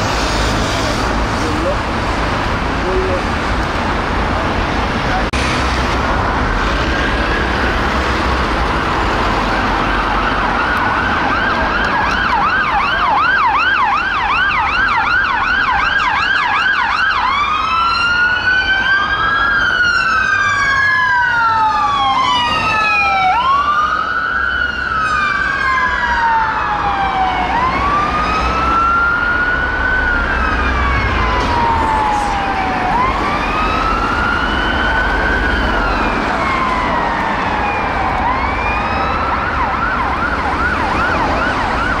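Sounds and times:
engine and traffic rumble: 0.0 - 42.0
siren wailing: 9.4 - 42.0
siren yelp: 9.6 - 42.0.

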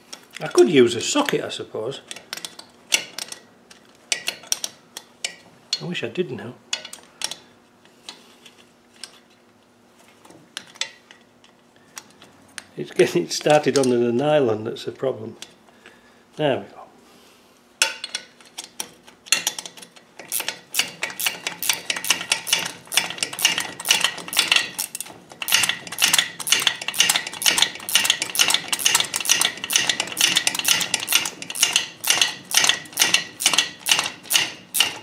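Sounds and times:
ratcheting spanner clicking: 18.1 - 35.0.

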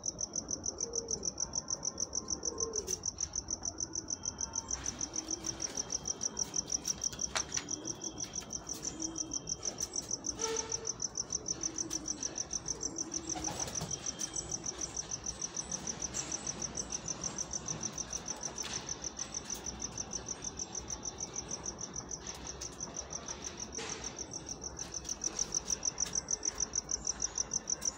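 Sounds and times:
cricket chirping: 0.0 - 27.9
pigeon cooing: 0.7 - 14.9.

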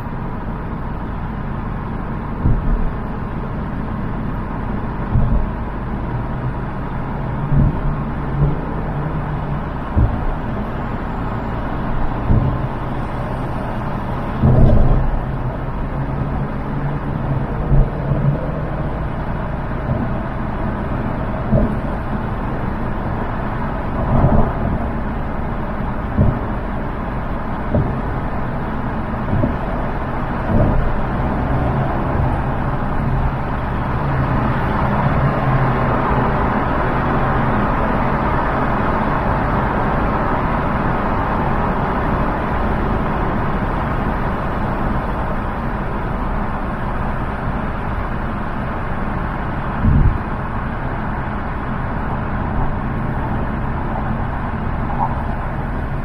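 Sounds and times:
car road and engine hum: 0.0 - 56.0
low thumps: 1.6 - 34.0, 49.8 - 50.6.

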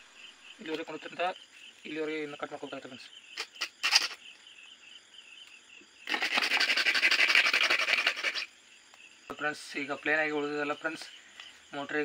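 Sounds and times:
crickets chirping: 0.0 - 12.0
hacksaw sawing through plastic: 6.1 - 8.5.

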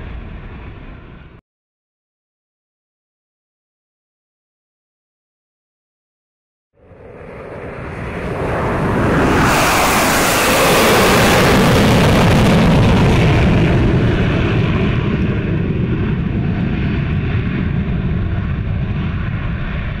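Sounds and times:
jet engines roaring past: 0.0 - 1.4, 6.8 - 20.0.

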